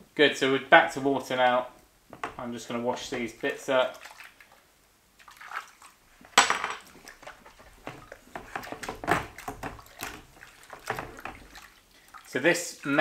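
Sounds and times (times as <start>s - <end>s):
hand scrubbing in water: 2.7s - 4.6s, 5.2s - 6.0s, 6.9s - 13.0s.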